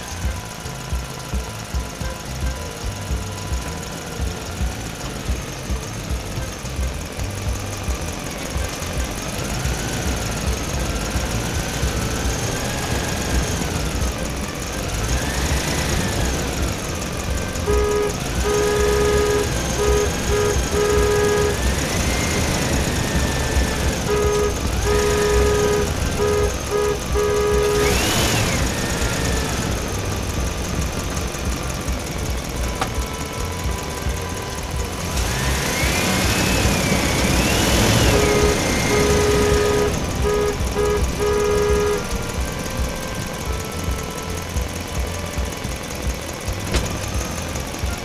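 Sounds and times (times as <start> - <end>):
beeping toy horn: 0.0 - 48.0
low engine-like rumble: 0.0 - 48.0
electronic siren-like tones: 8.5 - 45.7.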